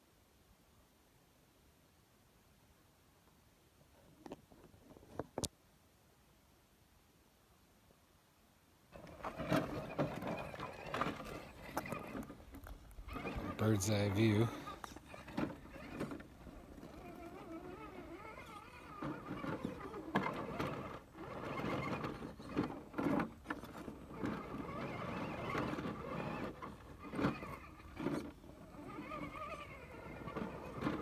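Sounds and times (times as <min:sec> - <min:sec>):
tires scraping against rock: 0:08.9 - 0:31.0
electric motor whining: 0:09.0 - 0:31.0.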